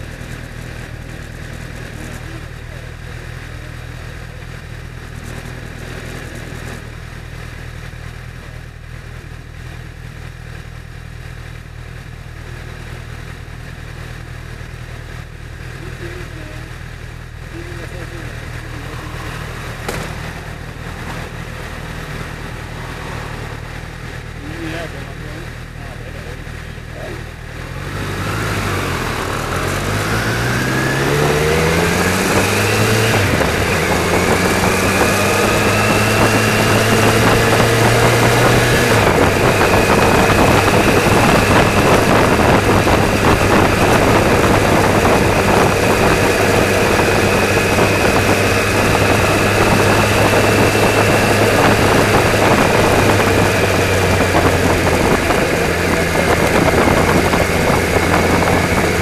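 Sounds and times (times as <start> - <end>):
car engine accelerating: 0.0 - 9.3, 12.2 - 59.0
road and tyre noise: 0.0 - 59.0.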